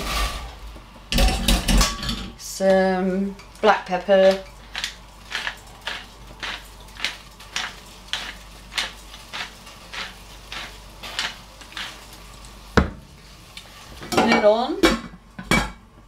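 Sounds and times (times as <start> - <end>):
pepper mill grinding: 3.6 - 12.6.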